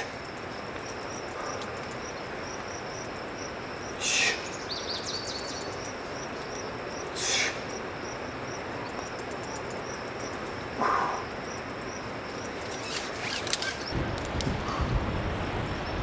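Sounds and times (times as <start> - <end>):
insect chirping: 0.0 - 14.0
steady hiss: 0.0 - 16.0
wind rumbling on microphone: 0.0 - 16.0
sharp clicks: 12.6 - 14.5.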